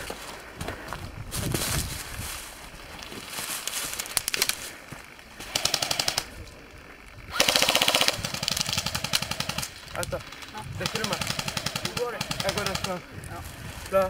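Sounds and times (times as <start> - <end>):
airsoft rifle full-auto bursts: 5.4 - 6.4, 7.3 - 13.0.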